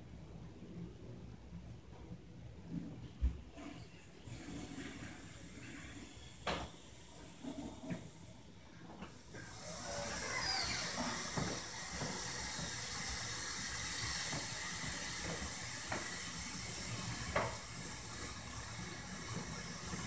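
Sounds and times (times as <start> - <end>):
faint knocks and thumps upstairs: 1.6 - 3.8, 10.1 - 13.2
steady hiss: 3.2 - 20.0.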